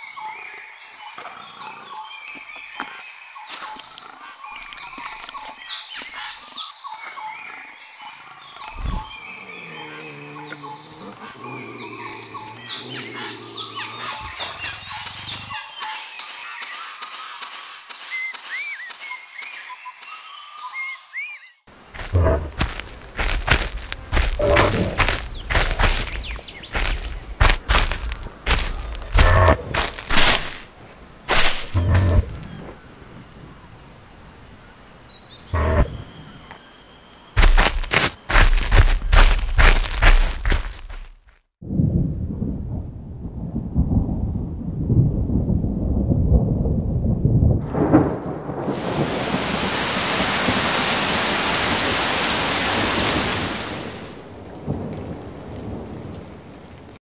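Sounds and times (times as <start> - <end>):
low leopard growl: 9.0 - 14.5
heavy low footstep thuds: 21.7 - 30.7, 37.4 - 41.3
rhinoceros low call: 22.0 - 23.2, 35.4 - 36.5.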